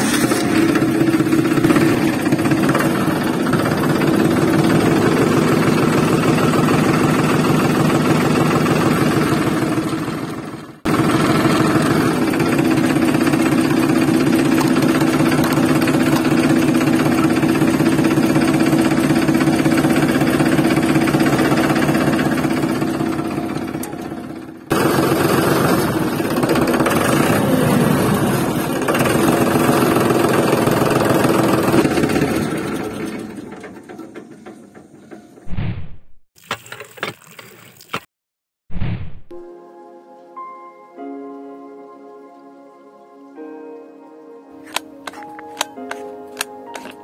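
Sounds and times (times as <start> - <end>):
tractor engine chugging: 0.0 - 35.4.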